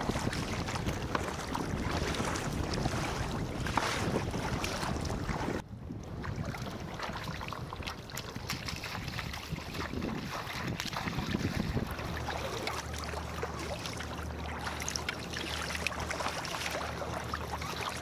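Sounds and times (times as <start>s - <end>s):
wind on microphone: 0.0s - 12.8s
gentle water lapping: 0.0s - 18.0s
paddles dipping in water: 0.0s - 18.0s
waves splashing against hull: 0.0s - 18.0s.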